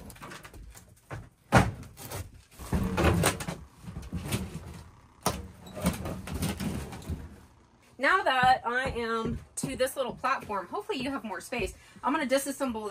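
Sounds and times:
sheet metal scraping and rattling: 0:02.0 - 0:07.5.

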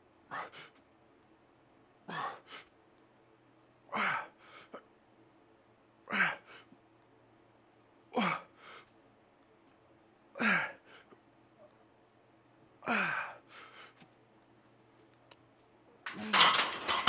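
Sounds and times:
quiet breath: 0:04.2 - 0:04.9, 0:08.5 - 0:09.0, 0:13.1 - 0:14.1
person grunting while lifting: 0:08.2 - 0:08.5, 0:10.4 - 0:10.8, 0:12.8 - 0:13.4.

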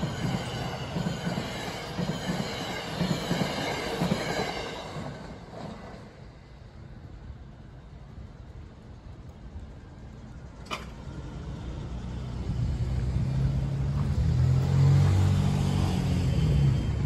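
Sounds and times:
vehicle engine approaching: 0:11.0 - 0:17.0.

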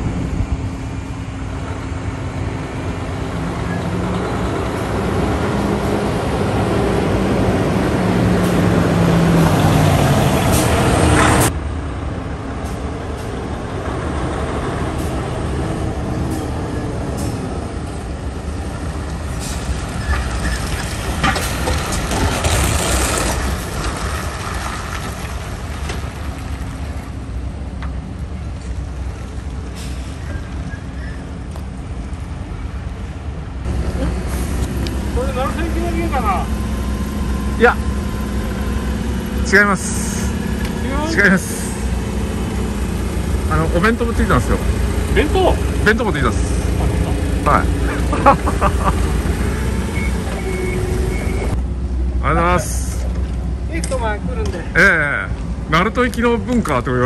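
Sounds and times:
diesel truck engine running: 0:00.0 - 0:57.0
air brake hiss: 0:29.7 - 0:30.5.

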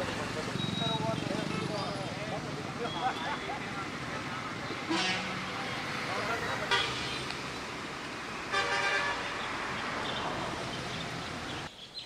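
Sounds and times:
traffic noise: 0:00.0 - 0:12.0
vehicle horn: 0:04.9 - 0:05.4, 0:06.6 - 0:07.1, 0:08.5 - 0:09.4.

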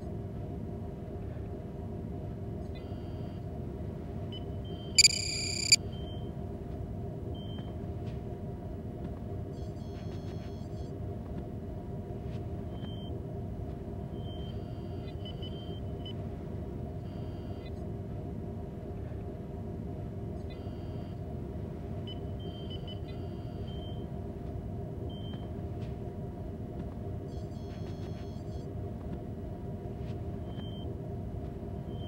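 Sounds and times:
low engine hum and rumble: 0:00.0 - 0:09.9, 0:17.6 - 0:22.0
electronic computer beeps: 0:05.0 - 0:05.8.

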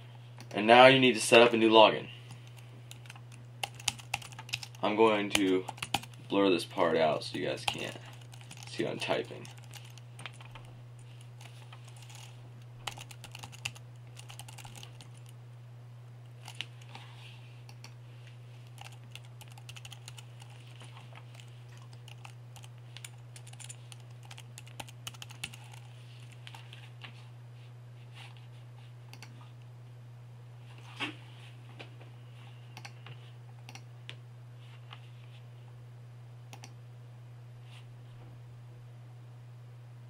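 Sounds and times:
steady low hum: 0:00.0 - 0:40.0
typing on a computer keyboard: 0:02.4 - 0:06.2, 0:07.6 - 0:10.6, 0:11.4 - 0:15.3, 0:18.8 - 0:20.6, 0:21.3 - 0:25.9.

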